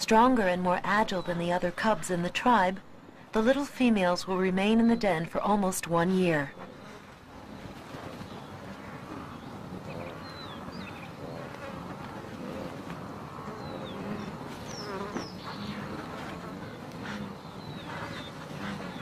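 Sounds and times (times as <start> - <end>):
insects buzzing: 6.5 - 19.0.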